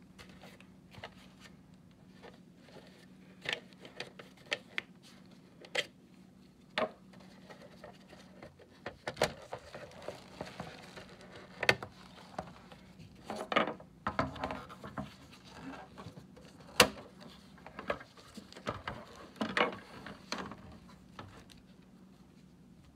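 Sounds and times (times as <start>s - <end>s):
plastic rubbing rustles: 7.1s - 22.9s.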